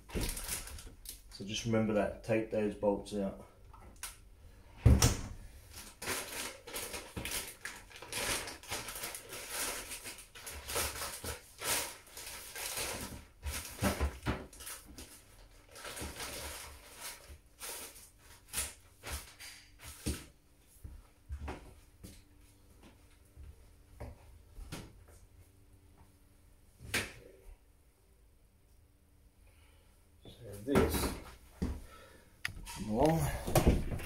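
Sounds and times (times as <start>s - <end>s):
plastic wrapping crinkling: 0.0s - 1.4s, 5.7s - 20.0s.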